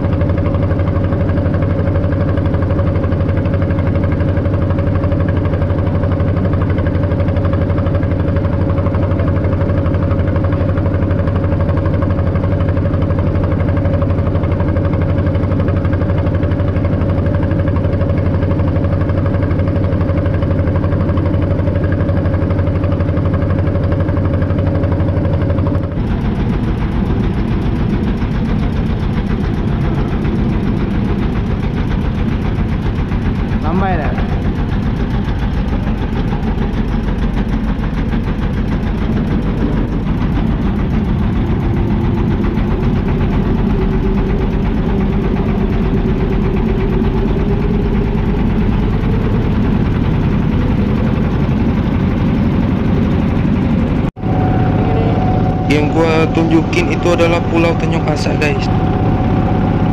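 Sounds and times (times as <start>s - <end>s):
boat inboard engine running: 0.0s - 59.9s.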